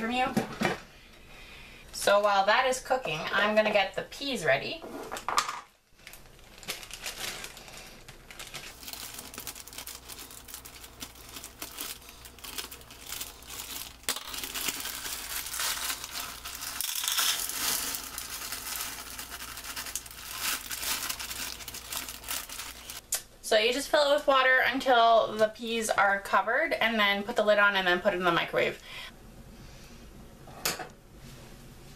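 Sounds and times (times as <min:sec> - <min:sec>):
plastic bag crinkling: 0:05.9 - 0:23.0.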